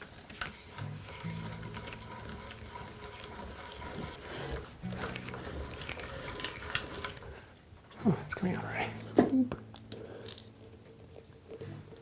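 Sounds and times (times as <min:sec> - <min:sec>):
auger boring through wood: 0:01.1 - 0:07.2.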